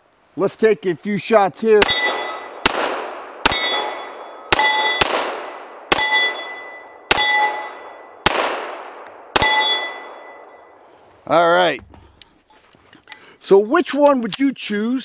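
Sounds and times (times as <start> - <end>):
steel targets ringing: 1.8 - 2.6, 3.5 - 5.2, 5.9 - 8.2, 9.4 - 10.8
pistol shots: 1.8 - 10.4.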